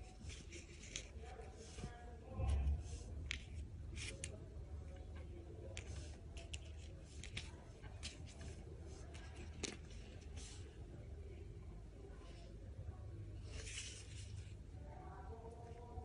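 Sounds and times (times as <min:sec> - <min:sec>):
steady low hum: 0:00.0 - 0:16.0
small clicks and rustles: 0:03.2 - 0:10.6.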